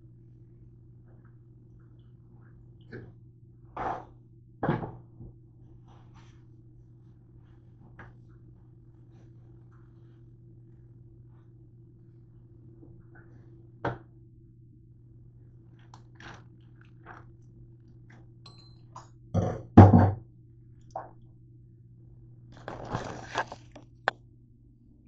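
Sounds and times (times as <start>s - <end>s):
steady low hum: 0.0s - 25.0s
plastic bag crinkling: 22.5s - 24.1s.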